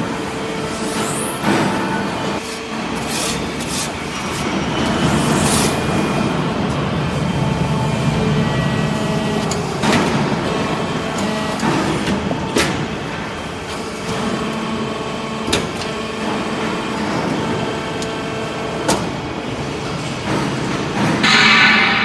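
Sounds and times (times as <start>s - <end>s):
hydraulic press machine noise: 0.0s - 22.0s
sharp metallic knocks: 21.1s - 22.0s.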